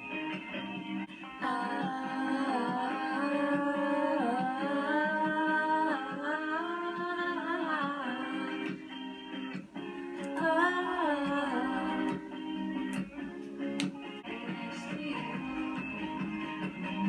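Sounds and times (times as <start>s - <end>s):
song with sliding vocal notes: 0.0s - 17.0s
person singing along: 1.3s - 9.0s, 10.2s - 13.0s, 14.2s - 17.0s.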